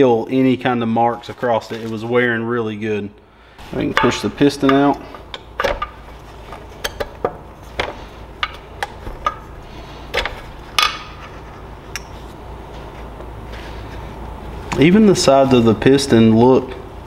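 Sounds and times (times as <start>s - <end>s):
metallic engine parts clinking: 3.7s - 12.3s.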